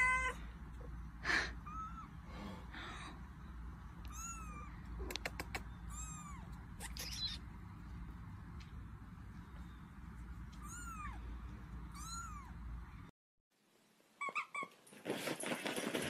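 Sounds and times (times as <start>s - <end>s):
sharp clicks: 5.0s - 5.7s.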